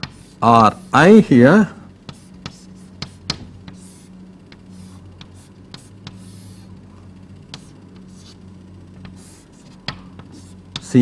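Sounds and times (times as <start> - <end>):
steady low hum: 0.0 - 11.0
pen scratching while writing: 2.1 - 6.7, 7.5 - 8.4, 9.0 - 10.9.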